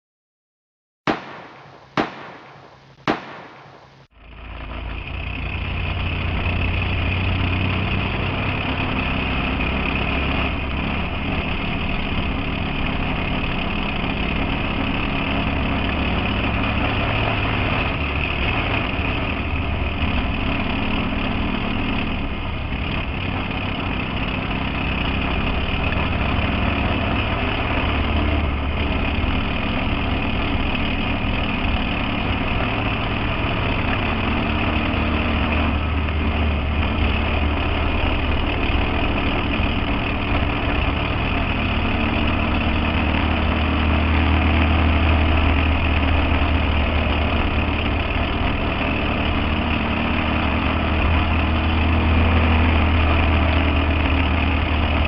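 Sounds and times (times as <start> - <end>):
sharp bangs: 1.1 - 4.1
race car engine drone: 1.1 - 55.0.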